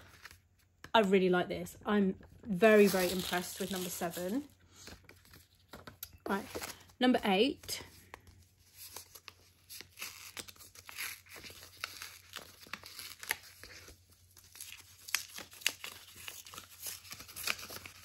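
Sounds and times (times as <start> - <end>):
wrapping paper ripping and crinkling: 2.6 - 7.0, 8.3 - 18.0.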